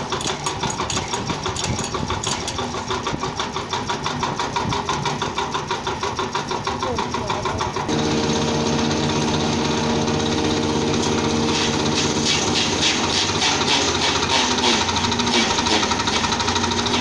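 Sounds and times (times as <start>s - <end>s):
small engine running: 0.0s - 17.0s
blades chopping dry stalks: 8.0s - 17.0s.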